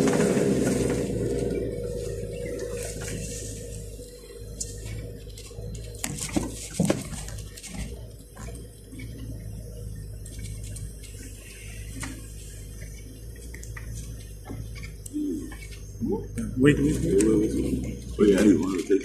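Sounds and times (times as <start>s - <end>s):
low engine drone: 0.0s - 19.0s
knocks and rattles from bumps: 4.9s - 9.2s.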